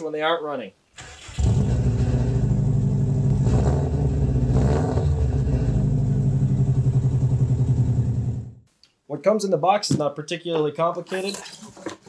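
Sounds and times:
car engine revving: 0:01.0 - 0:08.6
car engine idling: 0:05.3 - 0:08.6.

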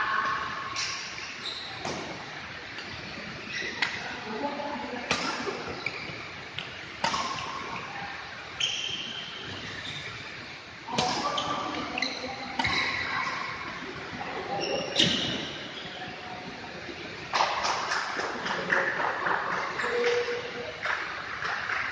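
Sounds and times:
court shoes squeaking: 0:00.2 - 0:04.2, 0:05.1 - 0:16.3, 0:19.6 - 0:21.9
rackets smacking shuttlecock: 0:06.6 - 0:07.8.

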